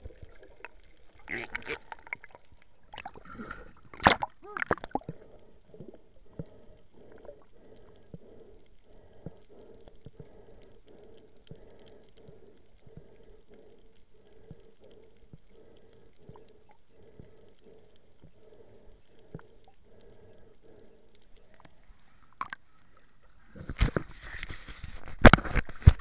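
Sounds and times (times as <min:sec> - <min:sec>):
air bubbles gurgling underwater: 0:00.0 - 0:07.8
faint clicks: 0:03.9 - 0:24.4.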